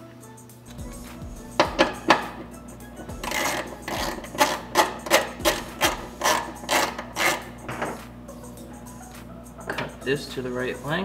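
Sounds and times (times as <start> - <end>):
wrench rasping on fittings: 3.1 - 7.7.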